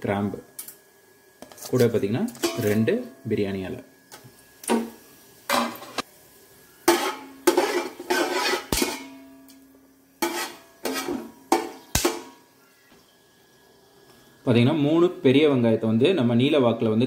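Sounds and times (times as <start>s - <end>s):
metal ladle scraping metal pot: 6.9s - 9.2s, 10.2s - 12.3s.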